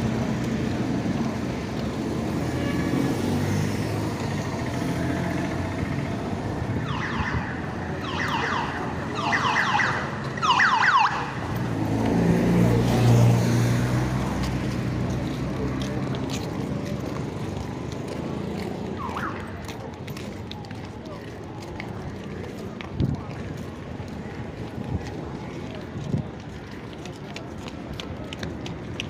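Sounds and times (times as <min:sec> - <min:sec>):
city street traffic: 0:00.0 - 0:29.0
vehicle engine passing: 0:10.9 - 0:19.7.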